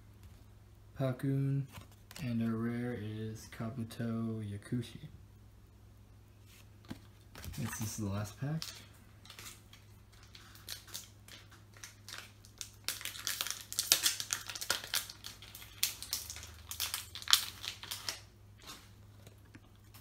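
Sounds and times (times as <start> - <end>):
foil wrapper crinkling: 7.4 - 20.0.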